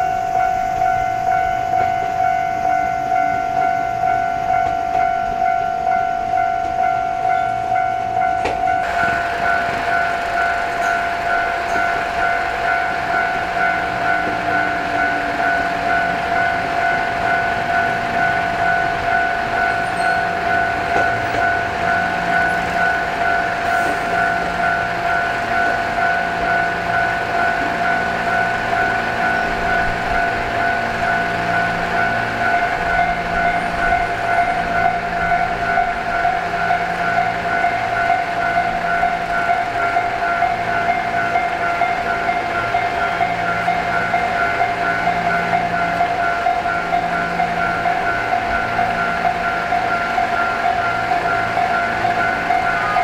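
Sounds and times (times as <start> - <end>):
electric train rumbling: 0.0 - 53.0
level crossing bell ringing: 0.0 - 53.0.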